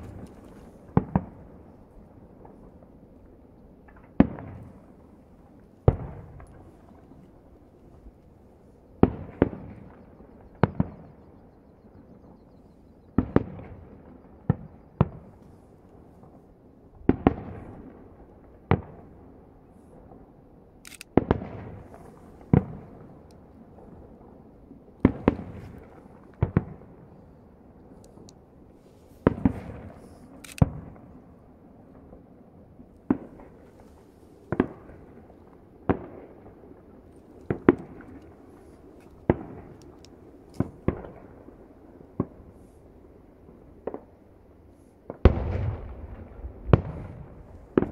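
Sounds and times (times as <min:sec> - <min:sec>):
firework shells bursting: 0:00.0 - 0:01.8, 0:27.8 - 0:31.2
rolling echo: 0:00.0 - 0:16.4, 0:21.0 - 0:44.4, 0:45.1 - 0:47.9.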